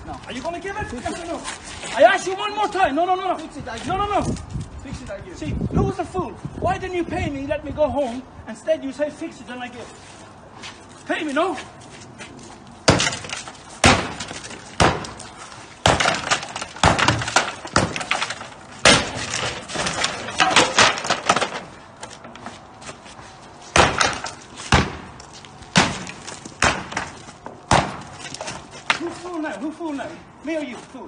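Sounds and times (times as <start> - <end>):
sledgehammer hitting wooden fence: 12.8 - 21.8, 23.7 - 29.2
wood cracking and splintering: 12.8 - 22.4, 23.7 - 29.6.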